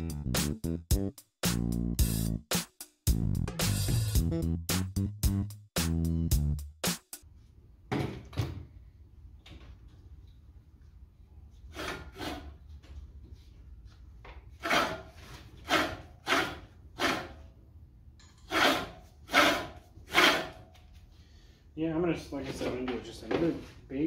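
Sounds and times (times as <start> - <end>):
reel mower blades scraping: 18.3 - 20.8.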